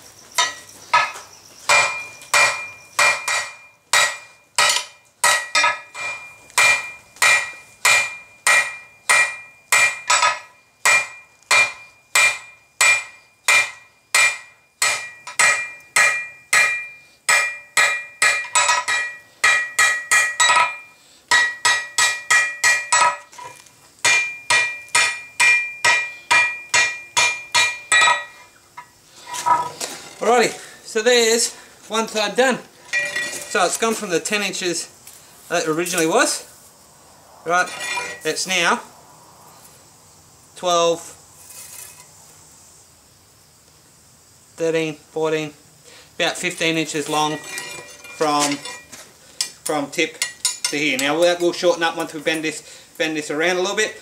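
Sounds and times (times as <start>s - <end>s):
hammer striking steel on anvil: 0.4s - 29.6s, 50.2s - 51.2s.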